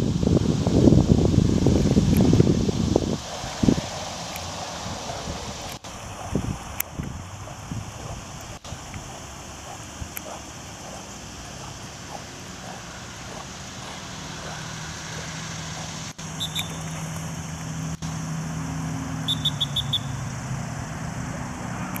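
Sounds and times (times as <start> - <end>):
short high chirps: 16.4 - 17.0, 19.3 - 20.2.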